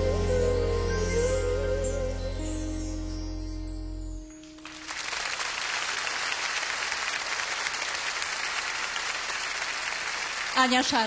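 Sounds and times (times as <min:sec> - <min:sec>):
held notes of a song: 0:00.0 - 0:04.9
audience applause: 0:04.6 - 0:11.0.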